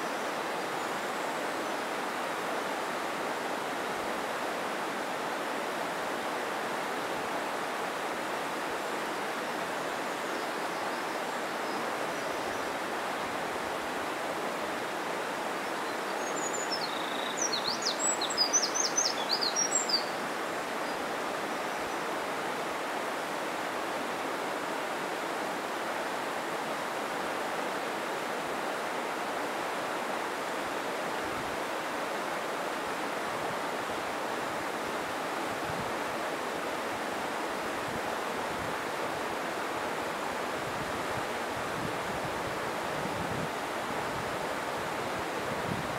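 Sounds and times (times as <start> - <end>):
mountain stream rushing: 0.0 - 45.9
bird chirping: 15.8 - 20.2.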